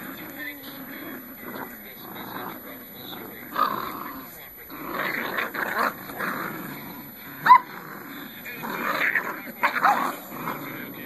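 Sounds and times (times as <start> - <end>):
puppies growling: 0.0 - 11.0
puppy yipping: 7.4 - 7.7.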